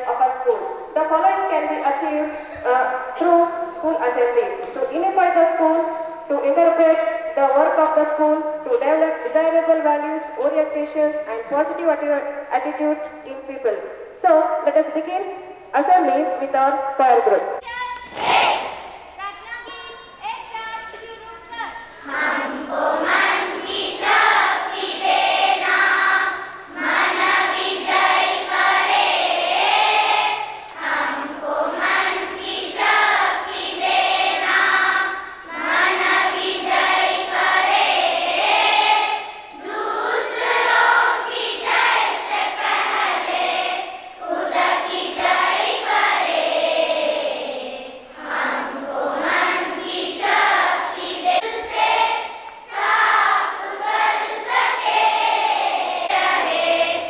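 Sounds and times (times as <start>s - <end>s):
children's choir singing: 18.0s - 19.2s, 22.0s - 57.0s.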